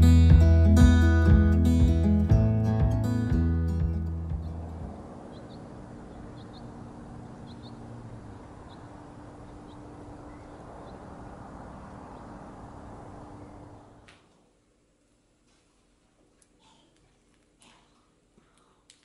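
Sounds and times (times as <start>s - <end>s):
low hum: 0.0s - 14.1s
high bird chirps: 4.4s - 11.4s.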